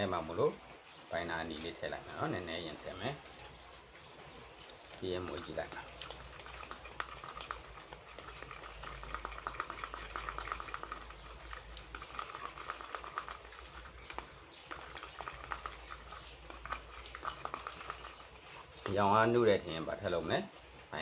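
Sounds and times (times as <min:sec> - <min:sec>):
stirrer scraping plastic cup: 0:04.3 - 0:19.4.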